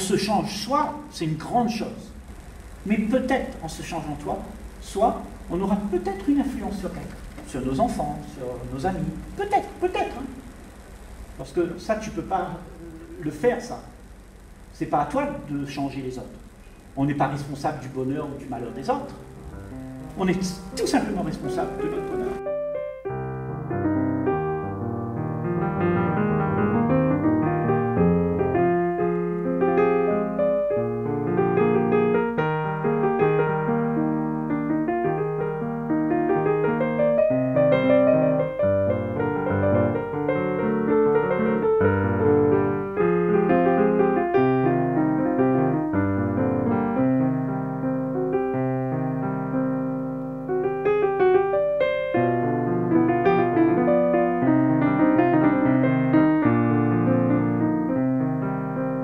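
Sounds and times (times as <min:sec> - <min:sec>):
person speaking: 0:02.8 - 0:10.6, 0:11.4 - 0:14.0, 0:14.7 - 0:19.3, 0:20.0 - 0:22.5
piano music: 0:17.4 - 0:59.0.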